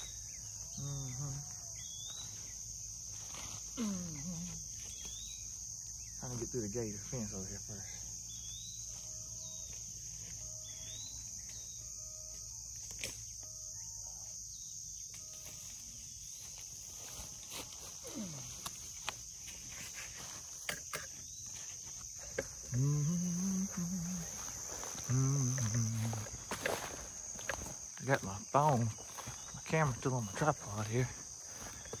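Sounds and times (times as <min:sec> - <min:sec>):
crickets chirring: 0:00.0 - 0:32.0
low grunting: 0:22.6 - 0:24.3, 0:25.0 - 0:26.3.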